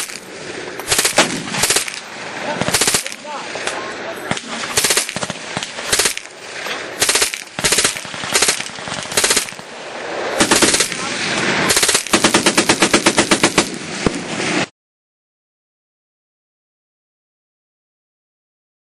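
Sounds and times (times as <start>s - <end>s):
rifle firing automatic bursts: 0.0s - 0.2s, 0.8s - 3.7s, 4.3s - 14.2s.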